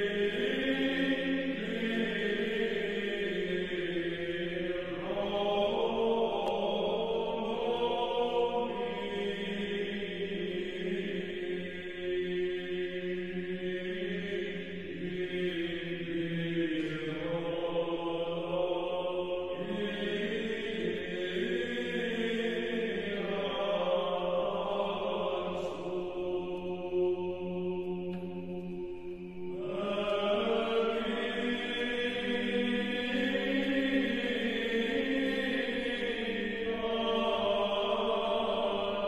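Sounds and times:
slow chant style music: 0:00.0 - 0:39.0.

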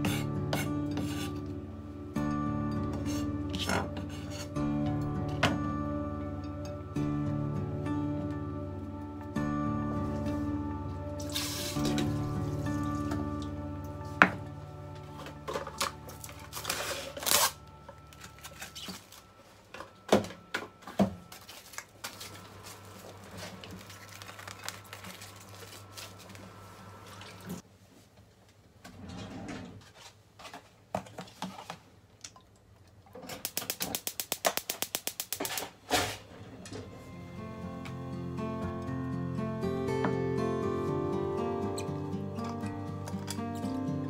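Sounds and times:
gas igniter clicking rapidly: 0:33.4 - 0:35.8.

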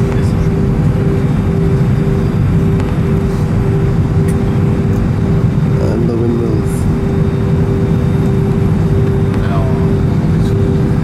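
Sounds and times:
airliner cabin engine rumble: 0:00.0 - 0:11.0
constant hum: 0:00.0 - 0:11.0
faint wavering tone: 0:00.0 - 0:11.0.

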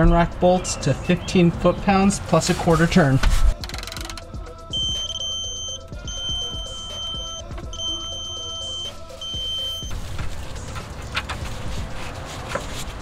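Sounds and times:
torque wrench beeping: 0:03.6 - 0:09.9.

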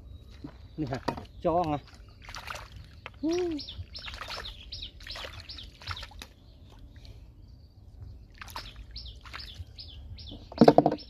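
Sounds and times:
birds chirping: 0:00.0 - 0:11.0
hands sloshing in muddy puddle: 0:00.3 - 0:03.3, 0:03.9 - 0:06.4, 0:08.3 - 0:09.6.

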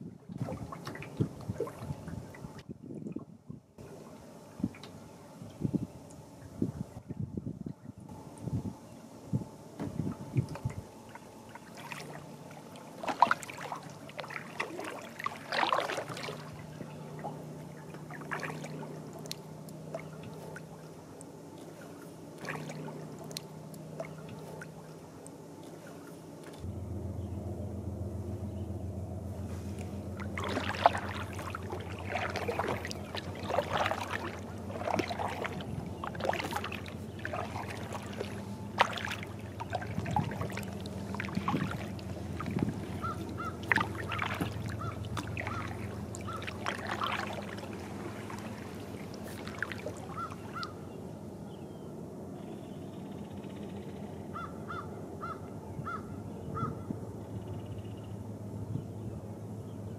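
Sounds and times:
water lapping against kayak hull: 0:00.0 - 0:59.2
crows cawing: 0:43.0 - 0:44.1, 0:44.7 - 0:46.5, 0:54.3 - 0:56.8.

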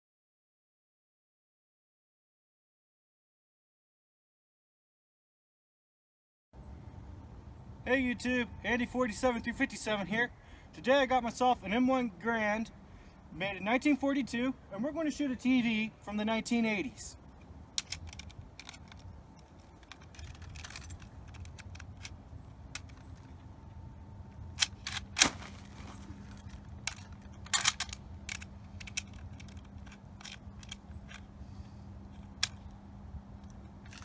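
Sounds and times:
rifle action metallic clicks: 0:17.4 - 0:23.3, 0:26.4 - 0:31.3.

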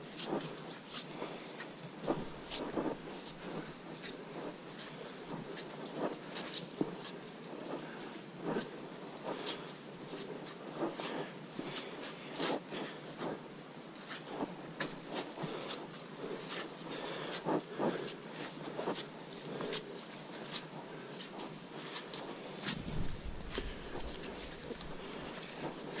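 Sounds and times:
background hiss: 0:00.0 - 0:26.0
boot footsteps on muddy trail: 0:22.6 - 0:26.0.

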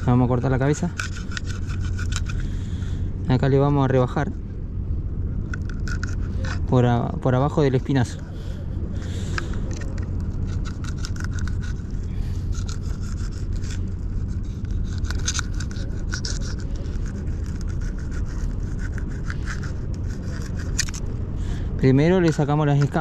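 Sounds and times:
knife scraping fish scales: 0:00.0 - 0:03.0, 0:05.4 - 0:06.8, 0:09.0 - 0:21.2, 0:21.9 - 0:23.0
low rumble: 0:00.0 - 0:23.0.

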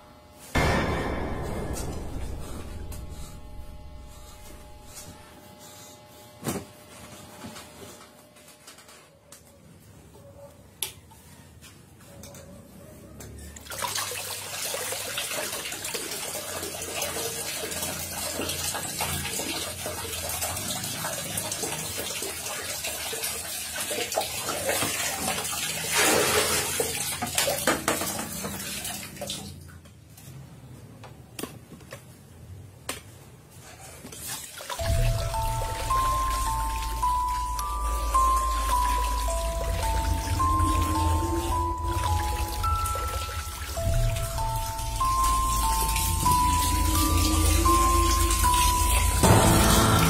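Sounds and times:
urine stream splashing in toilet: 0:13.6 - 0:29.5.

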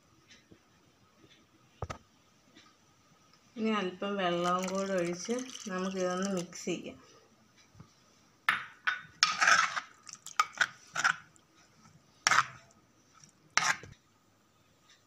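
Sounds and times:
metal spoon scraping pot: 0:09.2 - 0:11.3, 0:12.2 - 0:13.9.

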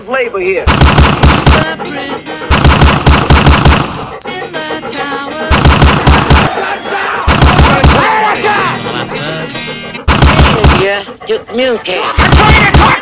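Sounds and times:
automatic gunfire: 0:00.7 - 0:01.7, 0:02.5 - 0:04.1, 0:05.5 - 0:06.6, 0:07.3 - 0:08.2, 0:10.1 - 0:10.9, 0:12.2 - 0:13.0
voices: 0:01.5 - 0:02.5, 0:04.2 - 0:13.0
music: 0:01.6 - 0:02.6, 0:04.2 - 0:11.4.

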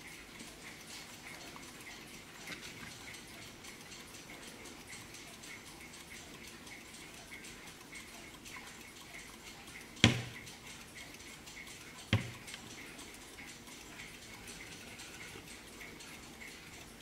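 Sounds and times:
clock ticking: 0:00.0 - 0:17.0
knocks on wooden case: 0:10.0 - 0:10.3.

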